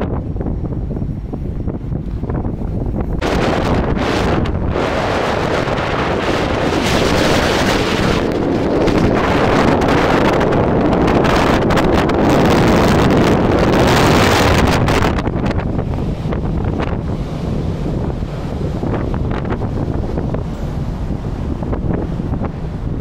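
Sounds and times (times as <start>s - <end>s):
wind buffeting microphone: 0.0s - 23.0s.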